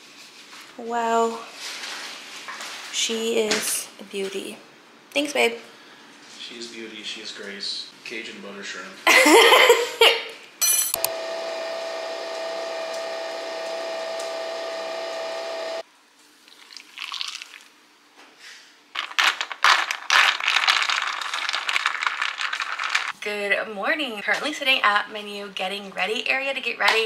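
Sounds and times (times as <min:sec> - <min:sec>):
coffee machine whirring: 0:10.9 - 0:15.8.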